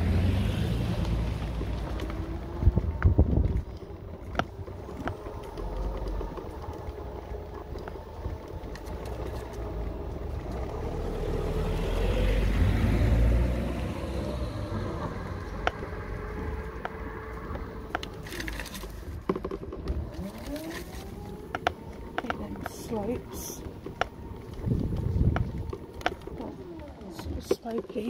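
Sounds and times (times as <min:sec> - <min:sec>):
car passing by: 0:00.0 - 0:03.7, 0:10.2 - 0:19.0
scooter rattles and ticks: 0:00.0 - 0:28.0
electric motor whine: 0:19.8 - 0:27.4.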